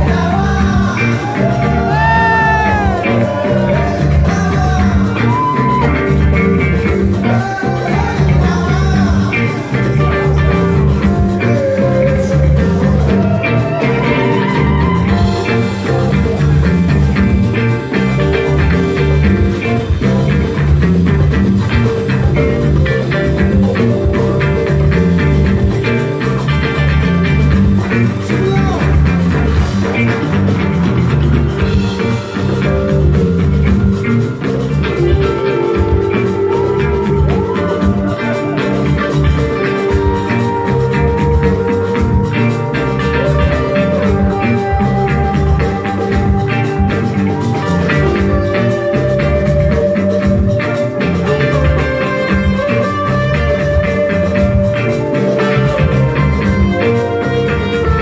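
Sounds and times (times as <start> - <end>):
electric guitar lead with bent notes: 0.0 - 58.0
live band instrumental jam: 0.0 - 58.0.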